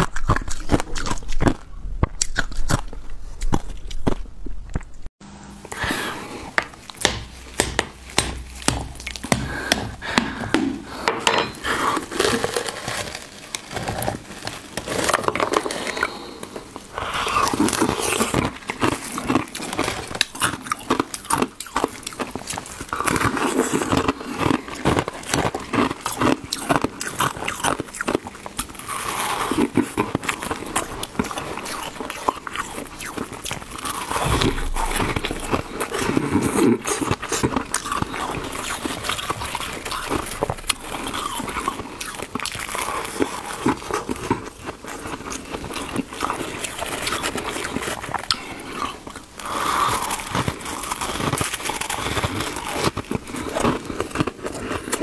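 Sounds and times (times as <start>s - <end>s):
ice crackling and snapping: 11.7s - 55.0s.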